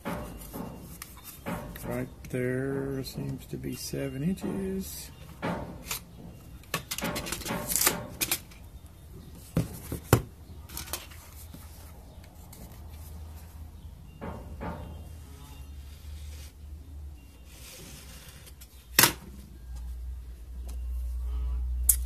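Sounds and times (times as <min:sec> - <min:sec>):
sharp clicks and knocks: 0:00.0 - 0:02.4, 0:04.2 - 0:08.7.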